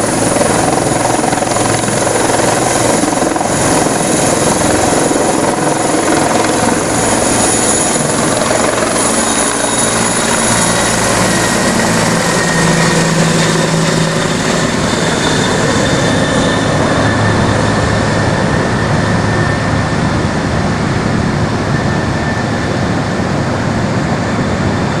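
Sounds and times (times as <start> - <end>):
helicopter rotor and turbine: 0.0 - 25.0.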